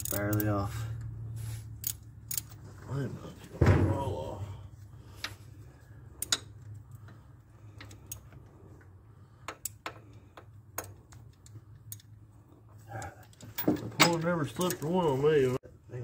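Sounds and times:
metallic clicks of hand tools: 0.0s - 0.5s, 1.8s - 2.6s, 6.2s - 7.1s, 9.4s - 12.1s.

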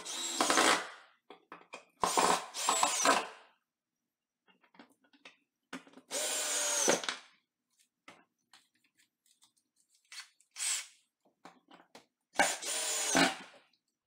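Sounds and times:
cordless drill driving screws: 0.0s - 0.8s, 2.0s - 3.3s, 6.1s - 7.0s, 12.4s - 13.5s.

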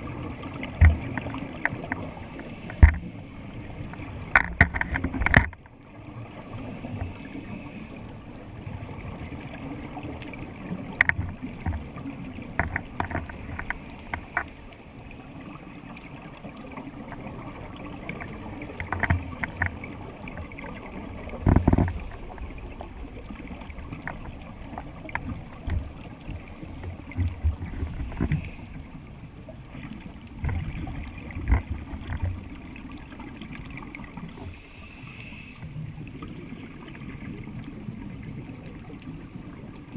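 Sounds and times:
underwater low rumble: 0.0s - 39.9s
scuba regulator breathing: 1.9s - 3.4s, 6.5s - 8.1s, 27.7s - 28.8s, 34.3s - 35.8s.

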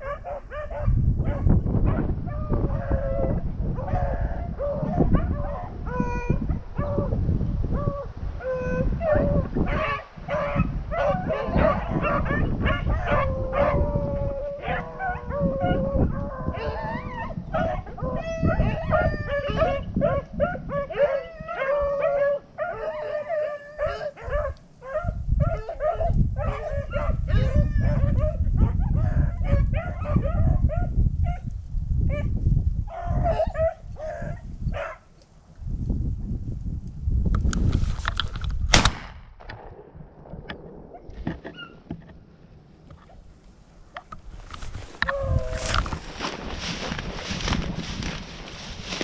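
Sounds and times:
dogs baying and howling: 0.0s - 31.5s, 32.1s - 35.0s, 44.6s - 49.0s
wind rumbling on microphone: 0.0s - 49.0s.

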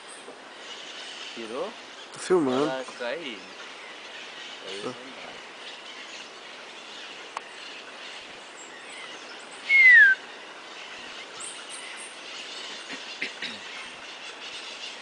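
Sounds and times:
river hiss: 0.0s - 15.0s
bird whistle gliding down: 9.6s - 10.3s.

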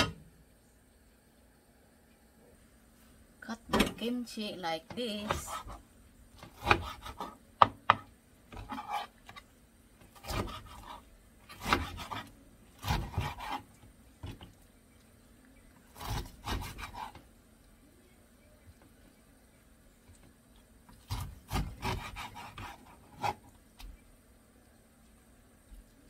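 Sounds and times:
knife cutting on plastic board: 6.4s - 9.4s, 10.0s - 14.5s, 16.0s - 17.2s, 21.0s - 23.4s.

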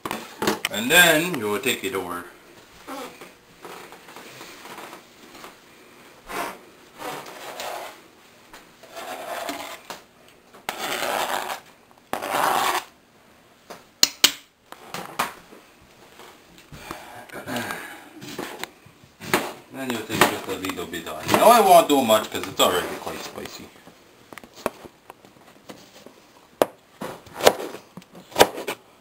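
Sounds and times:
scraping on plastic cutting board: 6.3s - 8.0s, 8.8s - 9.8s, 10.7s - 12.9s.

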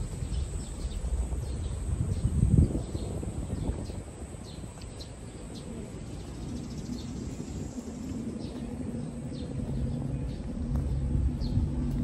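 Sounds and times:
low outdoor rumble: 0.0s - 12.0s
small birds chirping: 0.0s - 12.0s
steady low hum: 0.0s - 12.0s.

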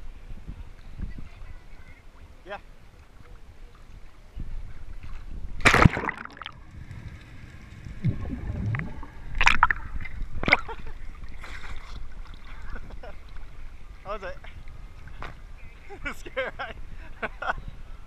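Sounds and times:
water sloshing: 2.9s - 15.6s
loud splash into water: 5.6s - 6.7s
underwater gurgling and bubbling: 5.7s - 10.6s.

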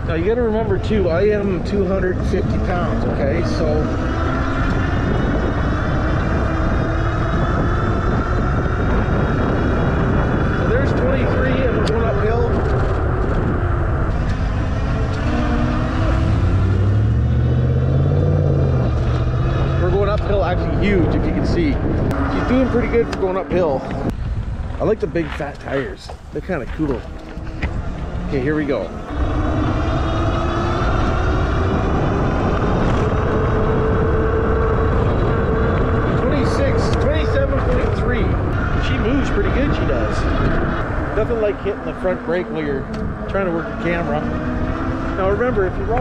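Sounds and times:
low hum: 0.0s - 46.0s
wind rushing over microphone: 0.0s - 46.0s
electric motor whining: 26.8s - 46.0s.

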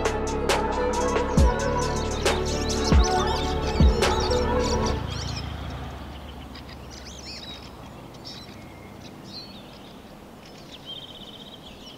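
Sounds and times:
background music: 0.0s - 6.0s
faint outdoor background: 0.0s - 11.9s
bird chirps: 0.8s - 11.9s.

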